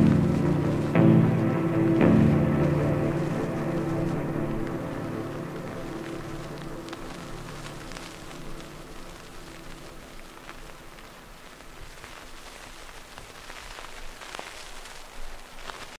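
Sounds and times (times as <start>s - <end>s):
sustained synth chord: 0.0s - 10.5s
steady hiss with crackles: 0.0s - 16.0s.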